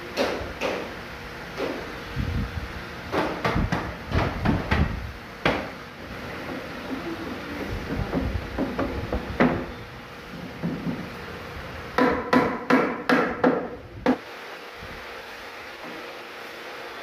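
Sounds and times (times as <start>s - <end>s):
hard knocks on wood: 3.1s - 5.7s, 7.9s - 9.7s, 12.0s - 14.2s.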